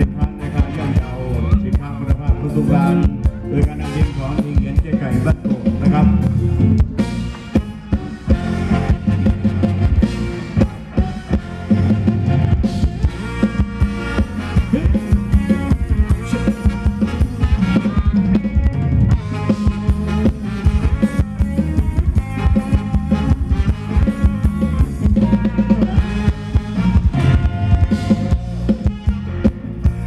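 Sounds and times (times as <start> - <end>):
drum kit beat: 0.0 - 30.0
live band dance music: 0.0 - 30.0.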